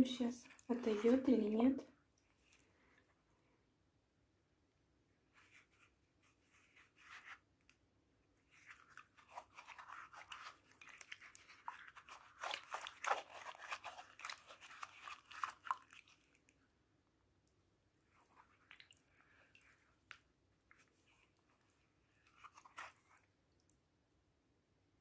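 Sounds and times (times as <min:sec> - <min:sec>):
wet canvas squished in soapy water: 0:08.5 - 0:16.6.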